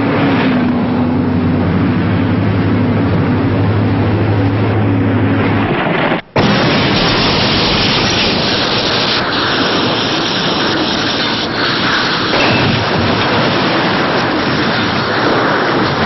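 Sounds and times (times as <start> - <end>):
truck crash and explosion rushing: 5.4 - 16.0.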